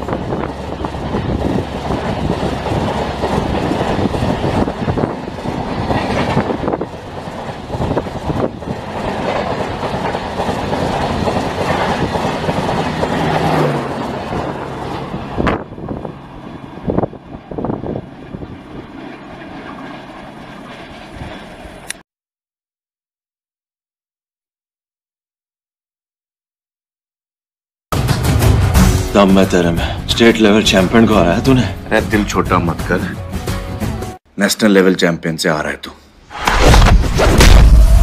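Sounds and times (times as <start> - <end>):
roar of train wheels on rails: 0.0 - 18.8
train rumbling away: 0.0 - 20.4, 28.0 - 34.1.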